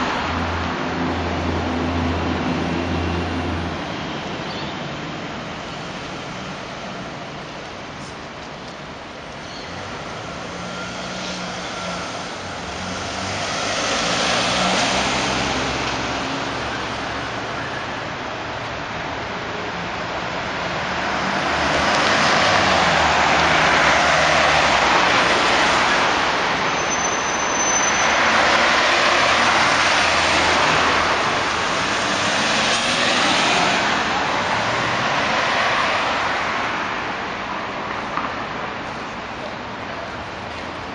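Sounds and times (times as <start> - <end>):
vehicles passing: 0.0 - 40.9.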